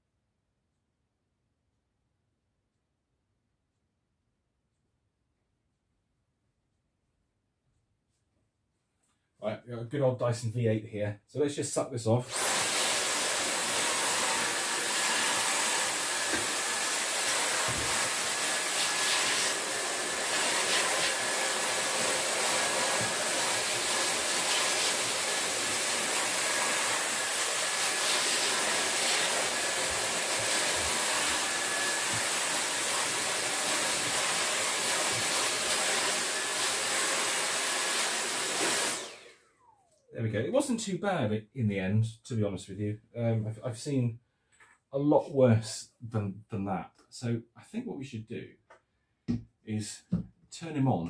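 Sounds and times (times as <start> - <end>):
handheld vacuum whining: 12.3 - 40.1
vacuum motor winding down: 12.3 - 40.1.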